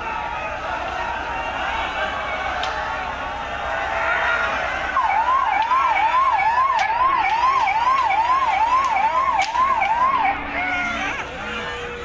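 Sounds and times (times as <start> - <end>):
noisy crowd: 0.0 - 12.0
electronic siren yelping: 4.9 - 12.0.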